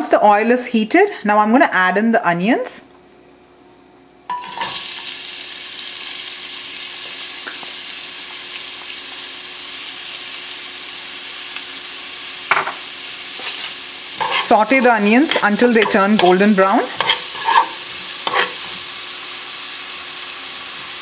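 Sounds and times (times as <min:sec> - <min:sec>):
onions sizzling in hot oil: 0:04.3 - 0:21.0.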